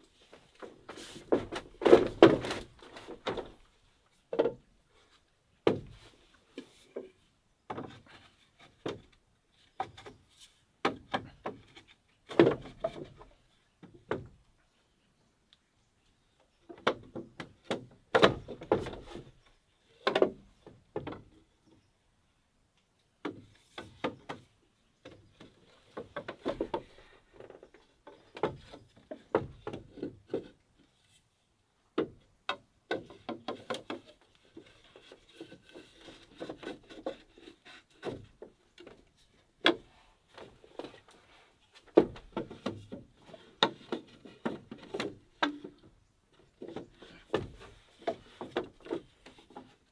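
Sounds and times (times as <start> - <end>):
bamboo poles knocking: 5.6 - 6.0, 10.8 - 14.4, 20.0 - 21.4, 25.0 - 30.6, 32.0 - 39.0, 41.8 - 49.8.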